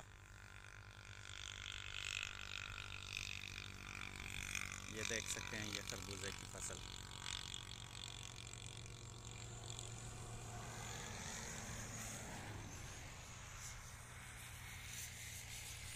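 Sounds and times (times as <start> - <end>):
distant road traffic hum: 0.0 - 15.9.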